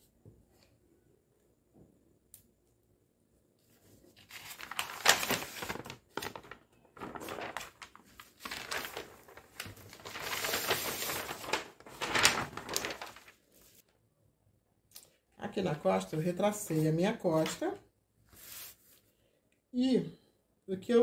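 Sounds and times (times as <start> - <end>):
paper sheets rustling and crinkling: 3.7 - 13.9, 16.0 - 17.7, 18.3 - 19.0.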